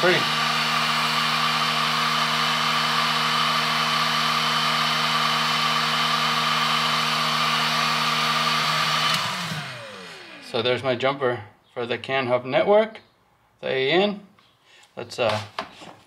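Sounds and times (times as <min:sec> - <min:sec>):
heat gun running and winding down: 0:00.0 - 0:10.8.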